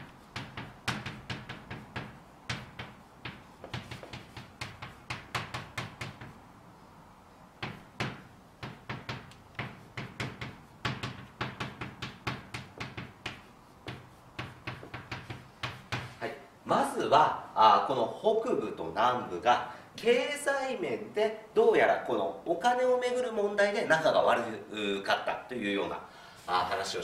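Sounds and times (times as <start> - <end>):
chalk tapping and scraping: 0.0 - 6.5, 7.6 - 16.3.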